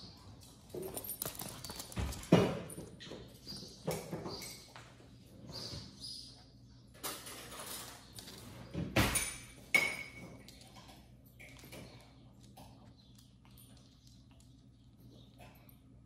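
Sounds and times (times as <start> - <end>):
paws clicking on hard floor: 0.3 - 5.0.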